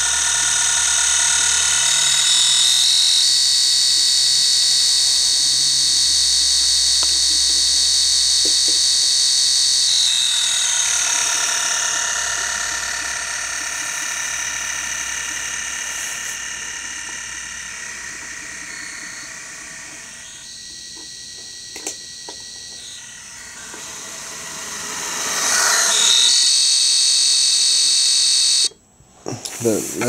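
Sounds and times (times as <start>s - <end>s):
model train motor whine: 0.0s - 28.8s.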